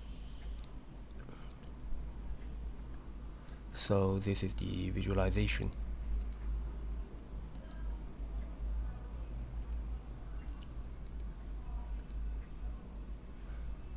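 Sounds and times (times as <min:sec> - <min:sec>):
computer mouse clicking: 0:00.0 - 0:01.9, 0:05.7 - 0:06.4, 0:07.5 - 0:07.8, 0:09.6 - 0:09.8, 0:10.4 - 0:11.3, 0:12.0 - 0:12.2
low steady hum: 0:00.0 - 0:13.9.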